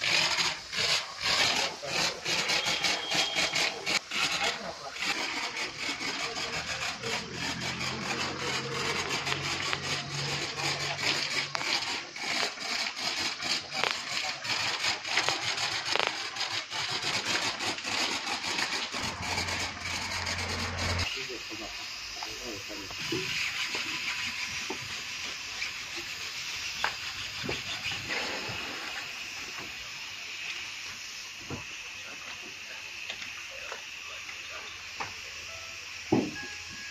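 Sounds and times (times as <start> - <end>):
washer motor humming: 0.0 - 21.1
pressure washer spraying hiss: 0.0 - 36.9.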